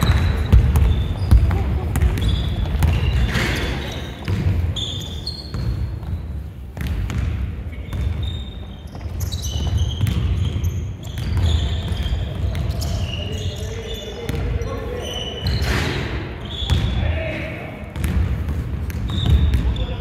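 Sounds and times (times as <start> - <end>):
basketball bouncing: 0.0 - 3.6, 4.2 - 4.7, 5.5 - 6.2, 6.8 - 8.3, 8.9 - 12.8, 18.0 - 19.8
players' voices: 0.0 - 5.5, 9.8 - 20.0
shoe squeaks: 0.0 - 6.4, 7.7 - 17.0, 19.1 - 20.0.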